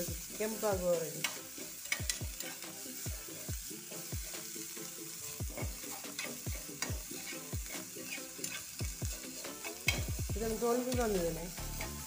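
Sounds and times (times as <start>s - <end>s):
oil sizzling: 0.0s - 12.0s
metal spoon scraping pan: 1.2s - 2.8s, 5.5s - 10.1s.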